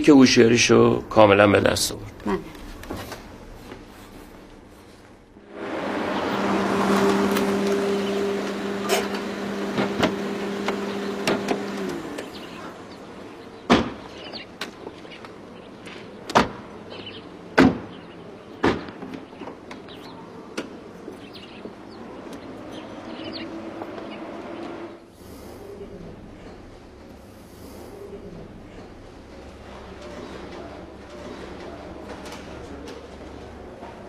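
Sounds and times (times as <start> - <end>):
car engine humming: 5.4 - 13.7.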